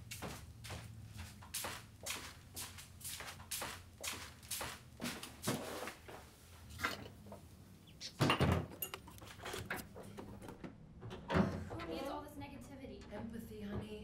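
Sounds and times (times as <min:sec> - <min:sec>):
kitchen items knocking and clunking: 0:08.1 - 0:12.0.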